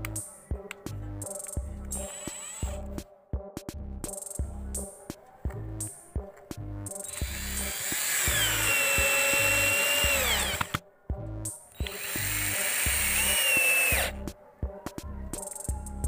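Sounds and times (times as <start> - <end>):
music with steady beat: 0.0 - 16.0
cordless drill driving screws: 2.0 - 2.8, 7.0 - 10.8, 11.8 - 14.1.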